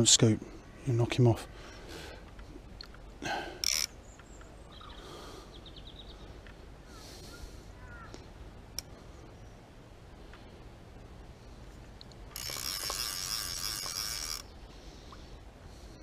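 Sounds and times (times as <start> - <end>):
faint bird chirps and trill: 3.7 - 8.2.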